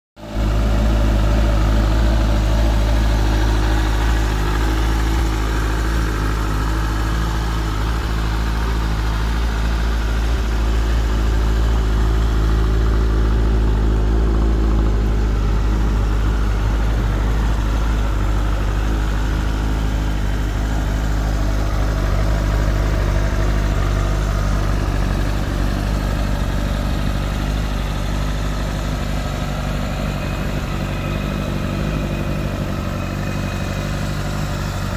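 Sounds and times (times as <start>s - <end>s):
motorcycle engine idling: 0.2s - 34.9s.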